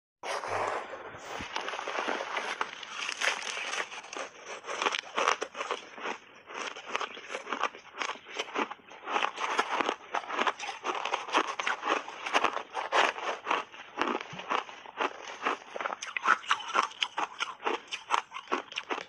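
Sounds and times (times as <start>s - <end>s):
ice being chewed crunching: 0.4s - 19.0s.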